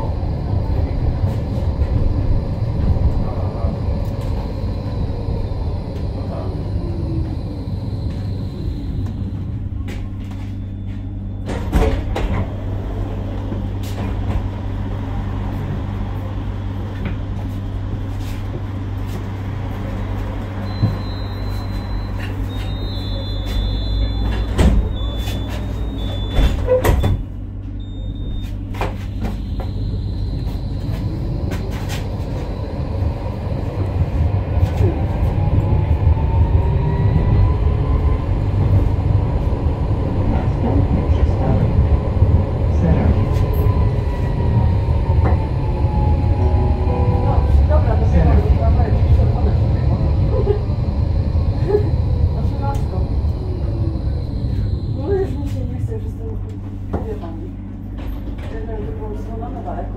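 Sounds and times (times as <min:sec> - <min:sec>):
tram braking: 0:00.0 - 0:59.9
tram doors clunking: 0:00.0 - 0:59.9
tram low hum: 0:00.0 - 0:59.9
tram motor whine: 0:00.0 - 0:59.9.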